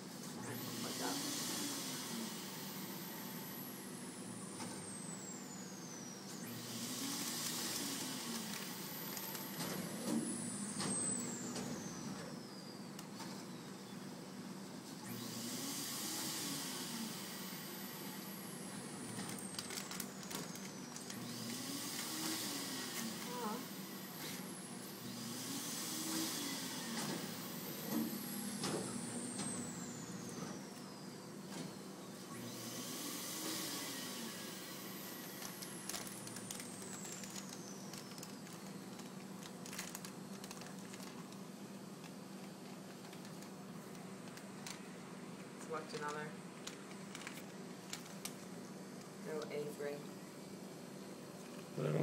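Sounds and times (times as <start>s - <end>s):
vacuum air hiss: 0.0s - 4.4s, 25.3s - 29.1s
motor hum: 0.0s - 52.0s.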